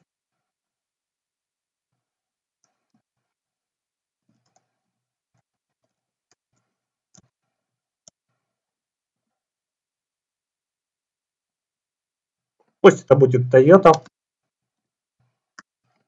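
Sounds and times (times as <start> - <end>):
keyboard typing clicks: 13.8 - 14.1.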